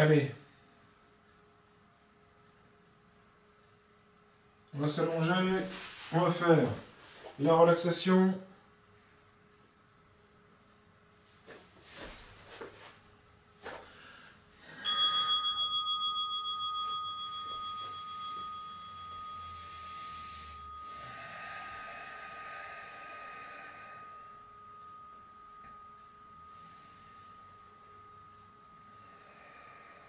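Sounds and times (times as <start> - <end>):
soft knocks and rustles: 11.4 - 13.0
singing bowl ringing: 14.6 - 30.0.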